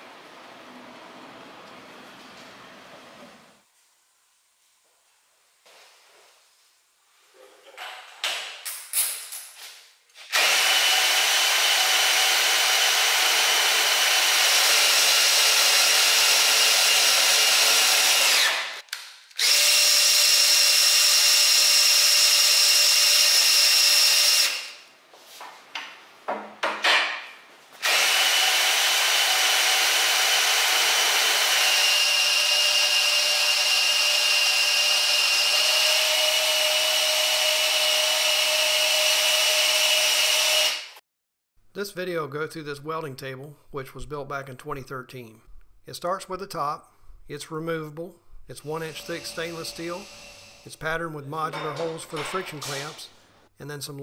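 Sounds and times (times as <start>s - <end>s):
cordless drill driving gears: 10.3s - 18.8s, 19.4s - 24.7s, 27.8s - 40.9s, 48.8s - 50.7s.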